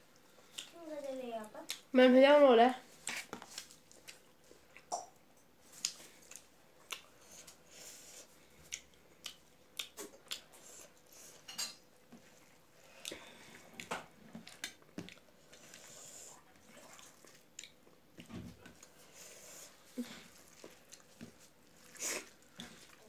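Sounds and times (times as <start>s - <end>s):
wet rice squishing: 3.0s - 4.9s, 12.2s - 23.0s.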